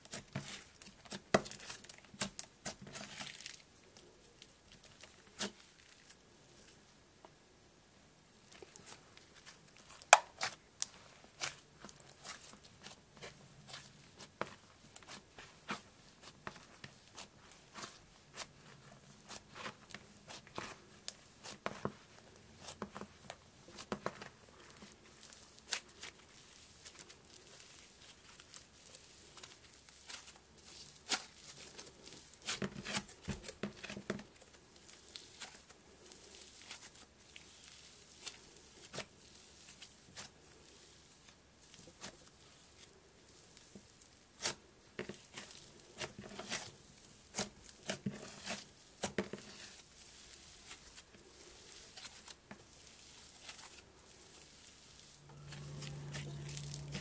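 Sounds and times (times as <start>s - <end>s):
slime crackling and tearing: 22.6s - 33.2s.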